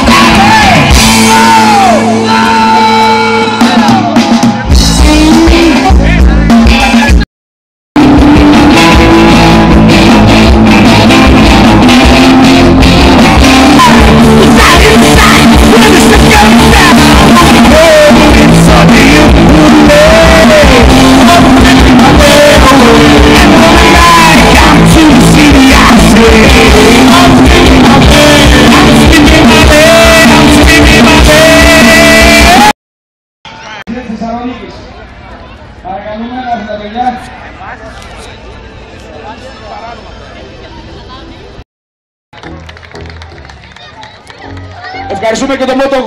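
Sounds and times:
live rock band playing: 0:00.0 - 0:07.2, 0:08.0 - 0:32.7
person singing: 0:00.0 - 0:07.2, 0:12.1 - 0:32.8.

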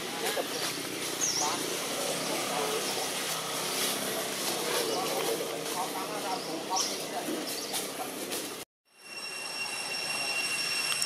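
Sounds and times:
high-pitched insect drone: 0:08.9 - 0:11.0.

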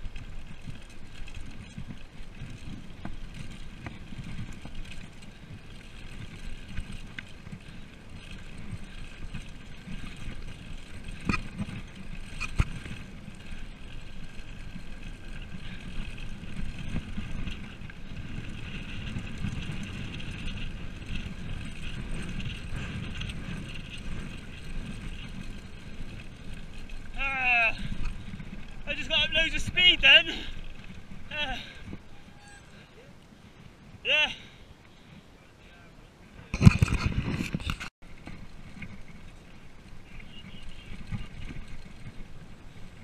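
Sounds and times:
bike tyres rumbling on gravel: 0:00.0 - 0:43.0
wind on microphone: 0:36.4 - 0:43.0.

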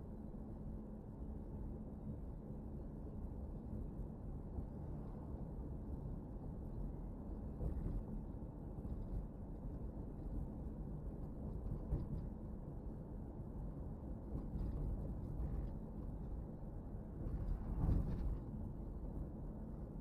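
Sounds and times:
car interior road rumble: 0:06.2 - 0:20.0.

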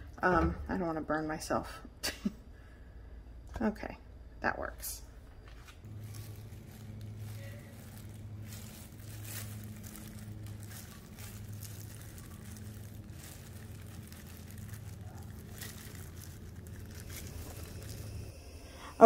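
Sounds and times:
steady low hum: 0:00.0 - 0:19.0
plastic gloves crinkling: 0:05.4 - 0:19.0.

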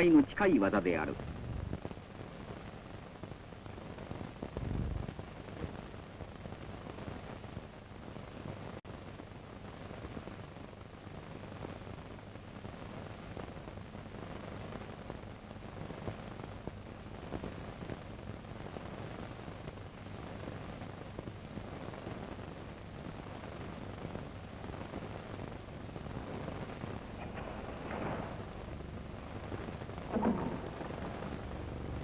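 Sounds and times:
recording hiss: 0:00.0 - 0:32.0
low hum: 0:01.1 - 0:01.9, 0:04.6 - 0:05.2, 0:25.6 - 0:32.0.

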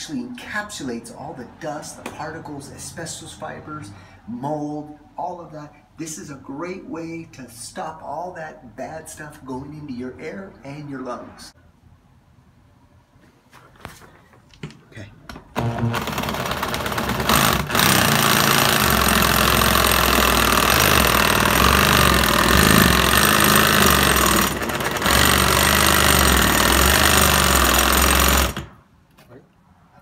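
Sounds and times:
reciprocating saw cutting drywall: 0:15.6 - 0:28.8.

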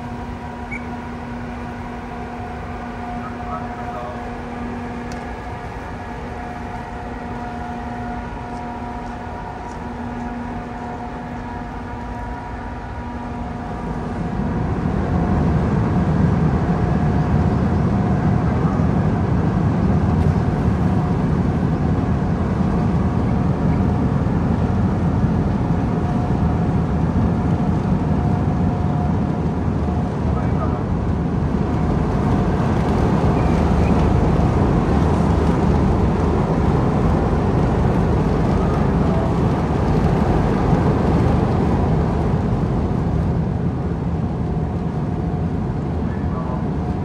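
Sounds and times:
deep engine rumble: 0:00.0 - 0:47.0
ship engine machinery humming: 0:00.0 - 0:47.0.

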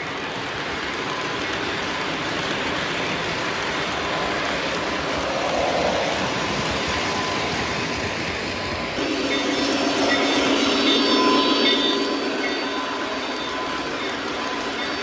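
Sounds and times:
model train wheels rumbling: 0:00.0 - 0:15.0
faint high tones: 0:08.7 - 0:15.0.

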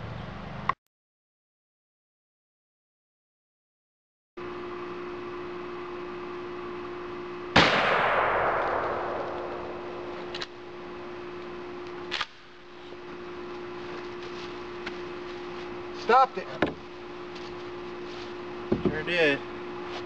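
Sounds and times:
shotgun blast with echo: 0:07.6 - 0:10.3.

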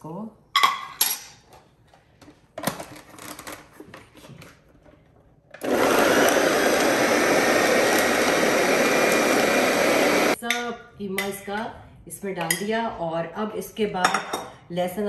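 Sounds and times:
electric food chopper grinding: 0:05.6 - 0:10.4.

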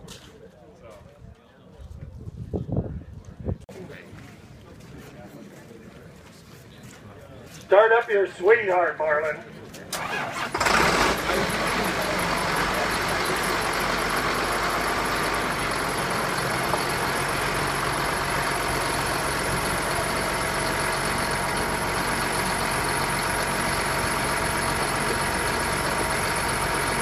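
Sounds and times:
tractor diesel engine idling: 0:10.0 - 0:27.0.

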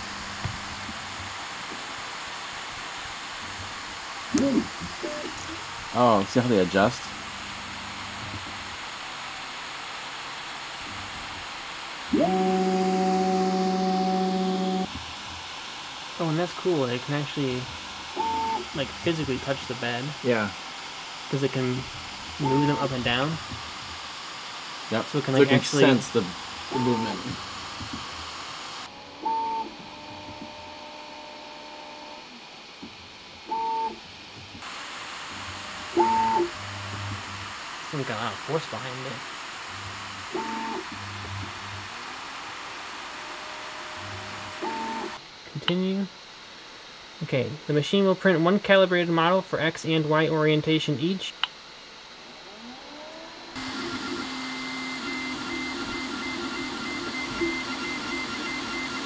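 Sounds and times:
fan hiss: 0:00.0 - 0:59.0
stepper motors whining: 0:12.0 - 0:32.4, 0:34.5 - 0:41.9, 0:43.1 - 0:45.2, 0:52.3 - 0:59.0.

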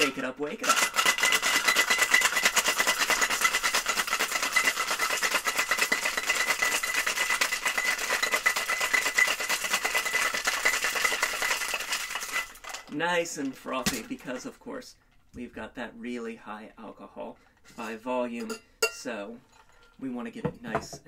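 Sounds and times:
ice rattling in cocktail shaker: 0:00.0 - 0:13.0.

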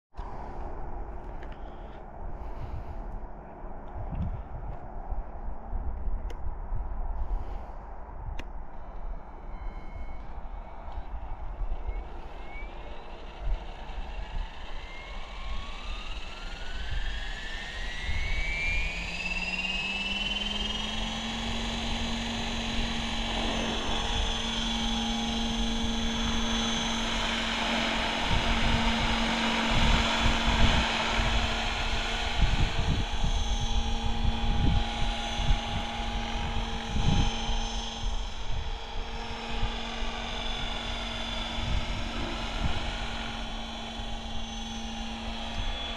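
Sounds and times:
helicopter motor and rotor whine: 0:00.2 - 0:06.5, 0:08.4 - 0:45.9.

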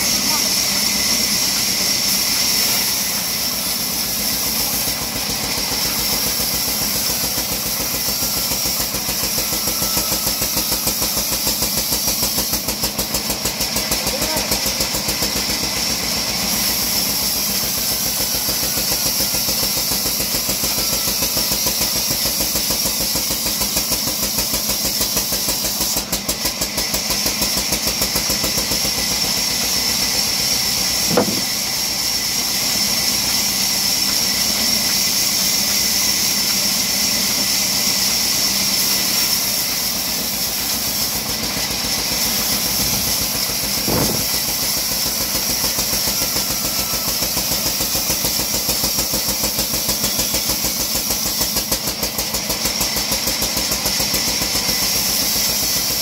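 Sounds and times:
bandsaw cutting log: 0:00.0 - 0:56.0
sharp knock: 0:31.1 - 0:31.5, 0:43.9 - 0:44.4.

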